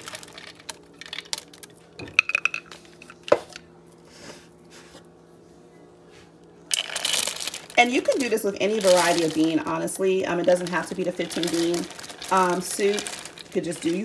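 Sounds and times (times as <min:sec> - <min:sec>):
dry beans rattling: 0:00.0 - 0:03.0, 0:06.7 - 0:14.0.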